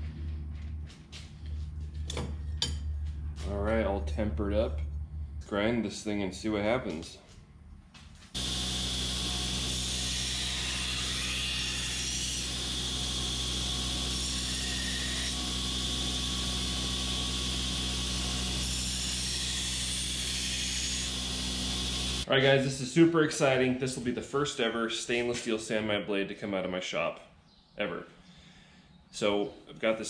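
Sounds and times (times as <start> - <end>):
grinder grinding metal: 8.4 - 22.3.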